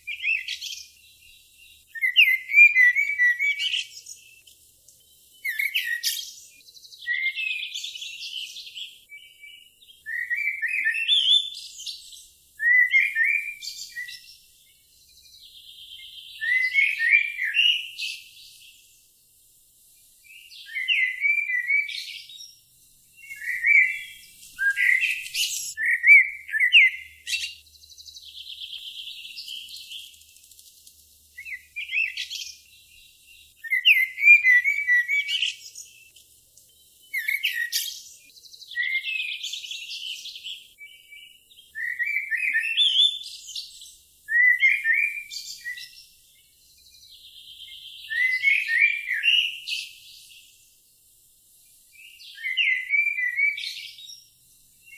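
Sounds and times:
songbird chirping: 0.0s - 54.9s.

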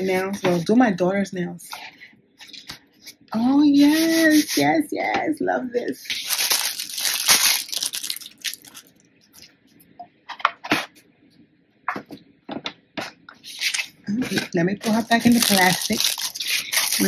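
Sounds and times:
plastic wrapping crinkling: 6.0s - 9.5s, 14.8s - 17.0s.

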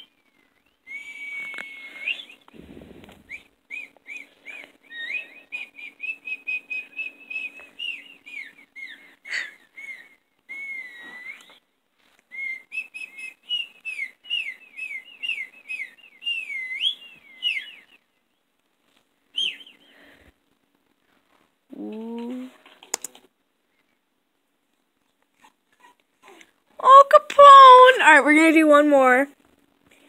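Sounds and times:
whistle-like chirps from speaker: 0.9s - 2.5s, 3.3s - 11.6s.

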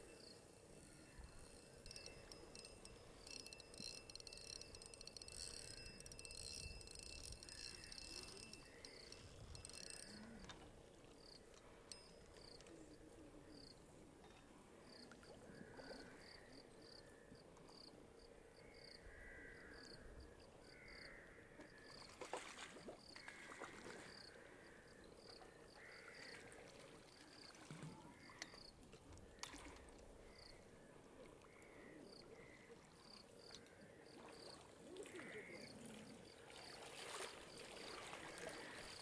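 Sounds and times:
insects chirping: 0.0s - 13.9s, 14.9s - 39.0s
fish splashing at the surface: 22.1s - 24.1s.

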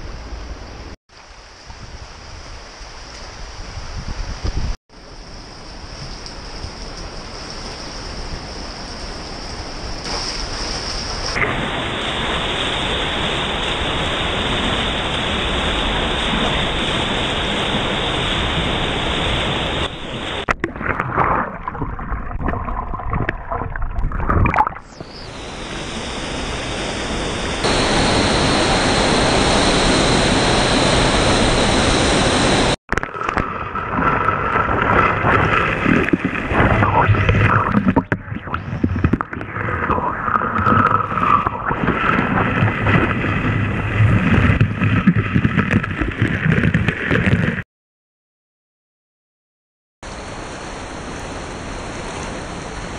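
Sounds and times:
water gurgling: 16.3s - 29.9s, 32.9s - 47.6s
waterfall rushing: 24.9s - 32.8s.

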